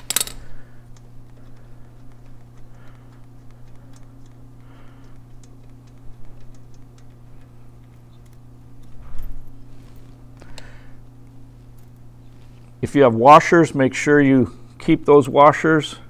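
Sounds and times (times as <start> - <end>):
metallic hand tool clicks: 0.0 - 0.4
steady low hum: 0.0 - 16.0.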